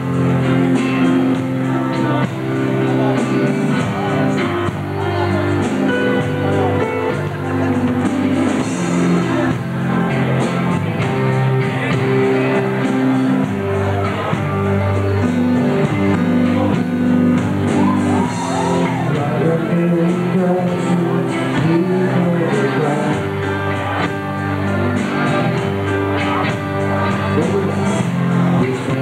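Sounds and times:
electric guitars: 0.0 - 29.0
keyboard: 0.0 - 29.0
person singing: 0.0 - 29.0.

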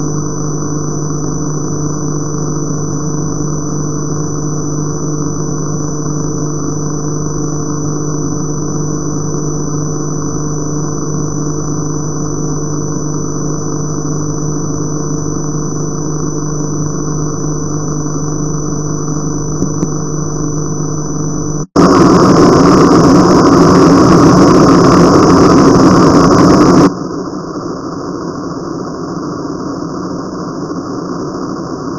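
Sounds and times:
analog tv buzz: 0.0 - 27.0
loud static hiss: 0.0 - 31.9.

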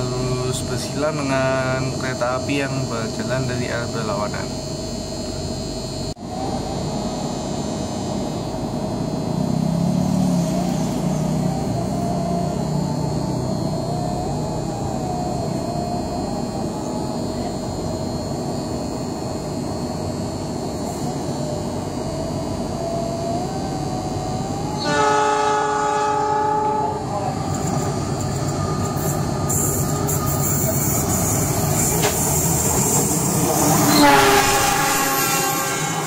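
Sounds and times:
diesel train engine idling: 0.0 - 9.4, 10.3 - 36.0
train horn: 24.8 - 27.3, 33.4 - 36.0.

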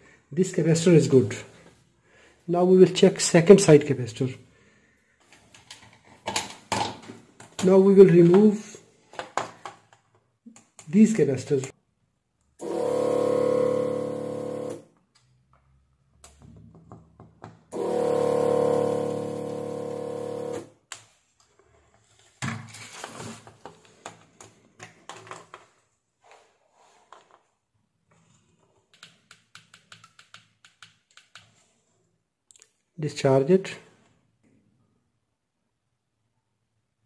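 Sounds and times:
desoldering pump buzzing: 12.6 - 14.8, 17.8 - 20.7.

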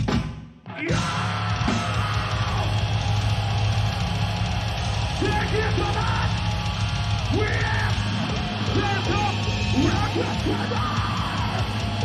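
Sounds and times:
heavy metal band playing live: 0.0 - 12.0
person yelling vocals: 7.3 - 8.0, 8.7 - 11.6.

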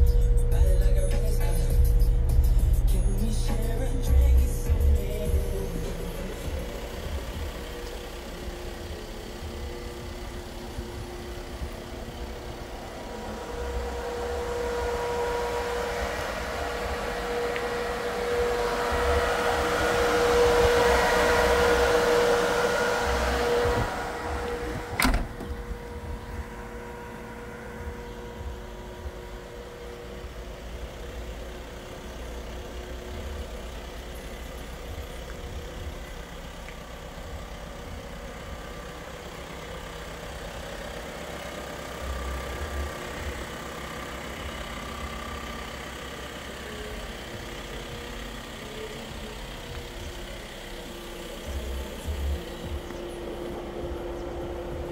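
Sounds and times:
diesel engine idling: 0.0 - 54.9
fan blowing with hum: 12.0 - 27.4
tailgate shutting bang: 23.3 - 26.8.

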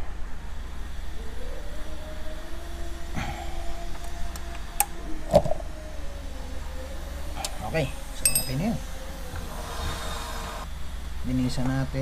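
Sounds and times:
steady low hum: 0.0 - 12.0
faint held tone: 6.7 - 9.3.

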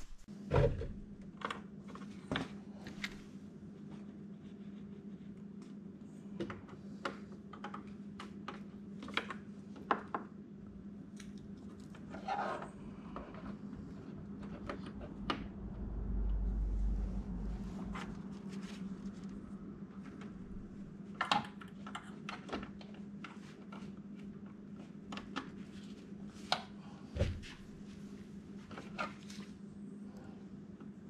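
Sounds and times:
low hum: 0.0 - 1.3, 13.7 - 21.2
low rumble: 15.3 - 21.0
scrape: 16.8 - 19.3.

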